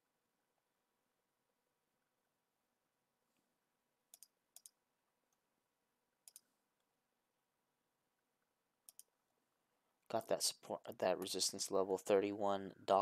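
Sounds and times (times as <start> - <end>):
computer mouse clicking: 4.1 - 4.8, 6.2 - 6.5, 8.8 - 9.1.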